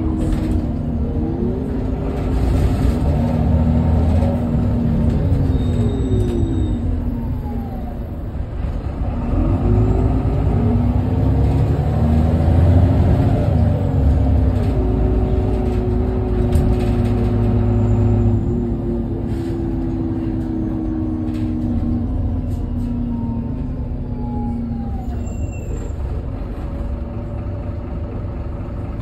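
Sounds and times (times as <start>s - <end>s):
bus diesel engine accelerating: 0.0s - 29.0s.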